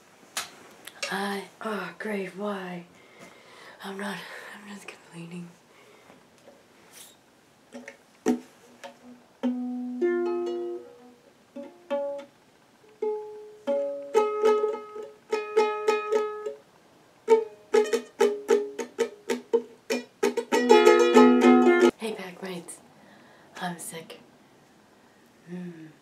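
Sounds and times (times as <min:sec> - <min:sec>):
plucked string instrument: 0:07.7 - 0:16.6, 0:17.2 - 0:21.9.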